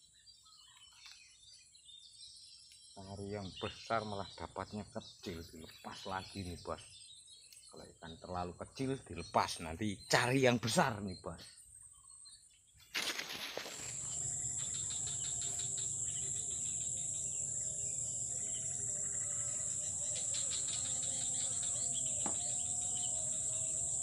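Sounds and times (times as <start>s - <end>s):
insects chirring: 0.1s - 24.0s
faint wavering calls: 13.8s - 24.0s.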